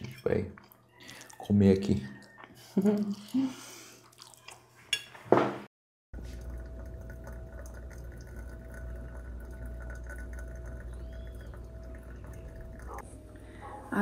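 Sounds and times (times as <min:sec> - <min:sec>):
faint hum: 0:06.2 - 0:14.0.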